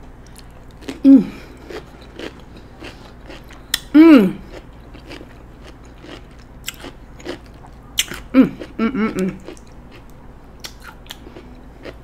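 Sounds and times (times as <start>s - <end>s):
chewing cucumber: 0.3s - 12.0s
person humming: 1.0s - 1.6s, 3.9s - 4.4s, 8.3s - 9.4s
wet mouth clicks and smacks: 10.6s - 11.2s.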